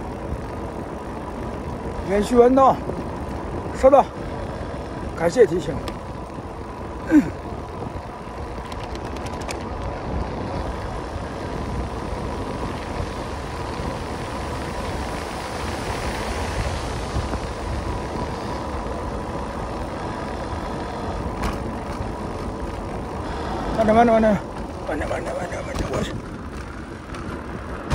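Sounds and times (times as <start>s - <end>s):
rushing road noise: 0.0s - 27.9s.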